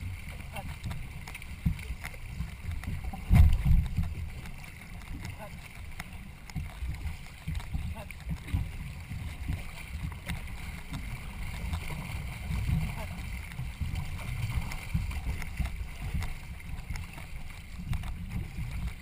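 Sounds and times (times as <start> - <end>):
wind on microphone: 0.0 - 4.6
water noise: 0.0 - 19.0.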